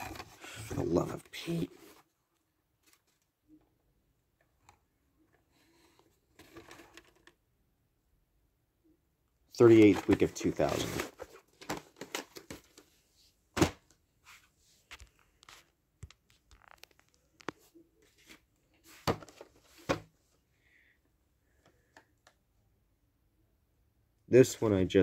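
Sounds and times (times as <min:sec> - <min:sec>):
plastic tape cases handled: 0:04.4 - 0:07.4, 0:09.6 - 0:14.0, 0:14.9 - 0:20.2.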